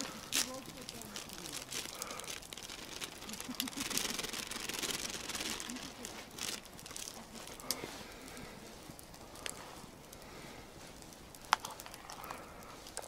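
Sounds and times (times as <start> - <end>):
grain pouring into metal pot: 0.0 - 7.2
plastic bag rustling: 0.0 - 9.9.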